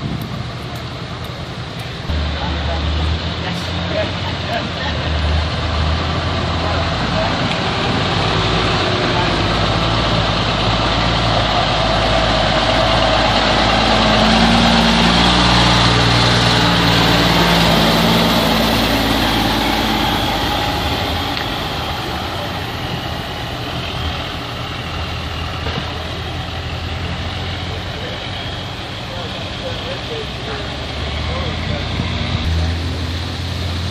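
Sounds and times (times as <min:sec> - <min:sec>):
diesel truck engine driving past: 0:00.0 - 0:33.9.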